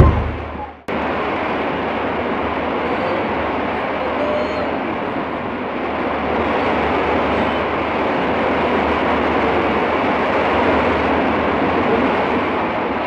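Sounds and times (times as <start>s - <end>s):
steady rushing rumble: 0.0s - 4.0s, 4.8s - 13.0s.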